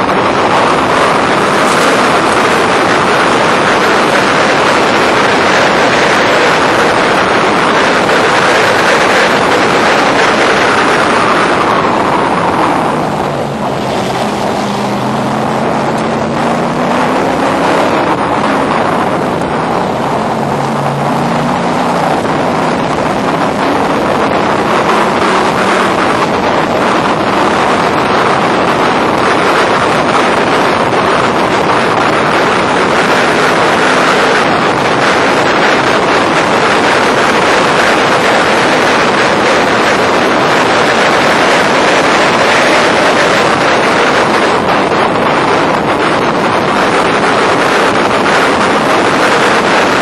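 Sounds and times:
car engine running hard: 0:00.0 - 0:50.0
wind buffeting microphone: 0:00.0 - 0:50.0.

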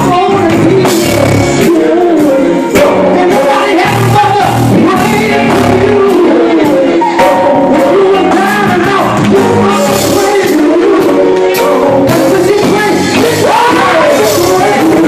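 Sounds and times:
live band playing: 0:00.0 - 0:15.0
man singing gospel into microphone: 0:00.0 - 0:15.0.

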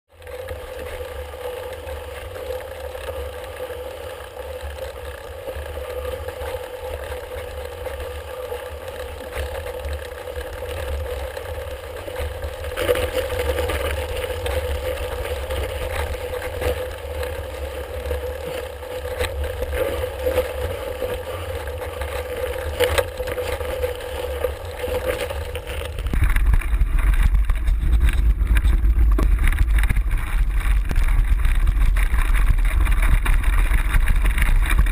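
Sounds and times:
off-road vehicle engine running: 0:00.1 - 0:34.9
wind rumbling on camera: 0:00.2 - 0:34.9
knocks from trail bumps: 0:26.0 - 0:34.9.

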